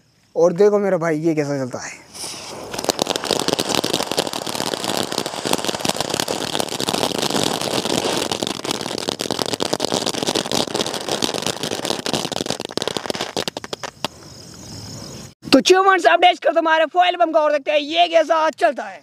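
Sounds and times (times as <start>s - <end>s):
firework hissing and crackling: 1.8s - 15.4s.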